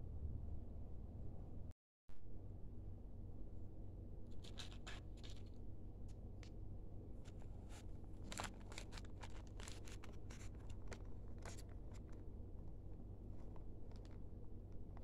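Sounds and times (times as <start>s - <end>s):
low steady hum: 0.0s - 15.0s
plastic bag crinkling: 7.3s - 14.2s.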